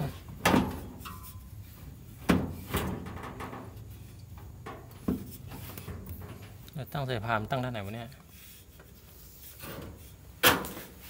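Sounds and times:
metal parts knocking and clunking: 0:02.3 - 0:06.6.

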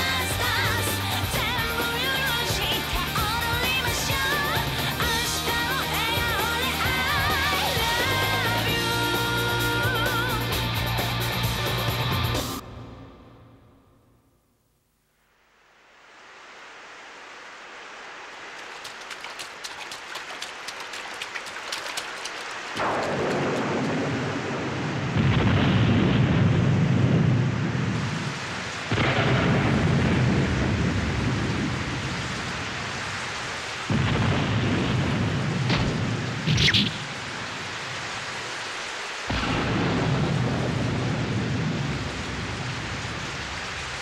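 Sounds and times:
steady rain: 0:00.0 - 0:12.6, 0:15.2 - 0:44.0
thunder rumbling: 0:18.6 - 0:38.2, 0:39.3 - 0:44.0.

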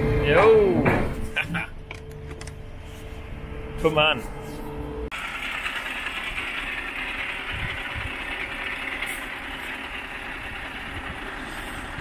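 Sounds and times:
diesel engine idling: 0:04.8 - 0:12.0.

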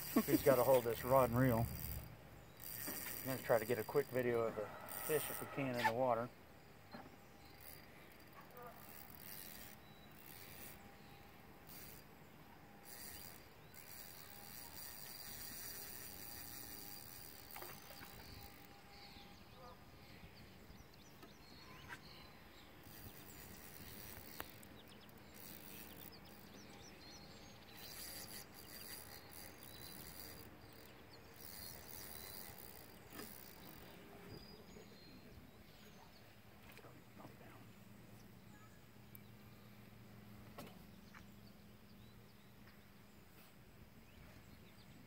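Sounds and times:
bird chirps: 0:09.4 - 0:12.0, 0:17.7 - 0:36.3
insect chirps: 0:21.6 - 0:33.9.

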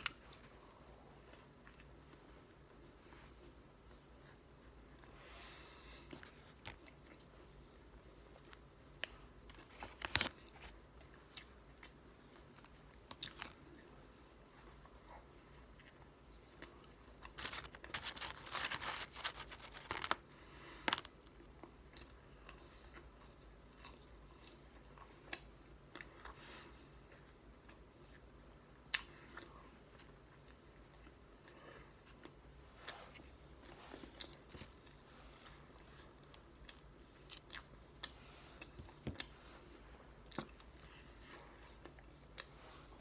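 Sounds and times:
paper packaging rustling: 0:09.5 - 0:10.8, 0:17.2 - 0:20.2.

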